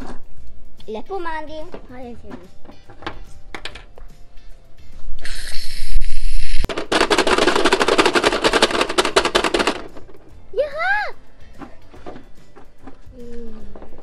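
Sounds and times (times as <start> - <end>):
aerosol can hissing: 5.2 - 6.7
child squealing: 10.6 - 11.2.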